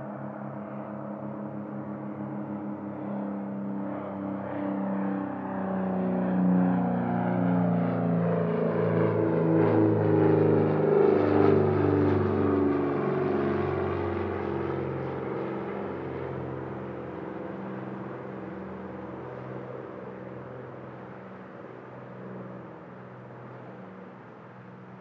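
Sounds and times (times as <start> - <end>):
twin propeller airplane drone: 0.0 - 25.0.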